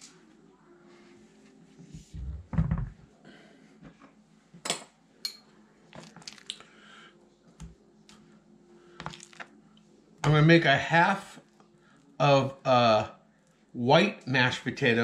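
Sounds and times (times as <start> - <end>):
metal spoon clinking on dish: 5.2 - 5.5.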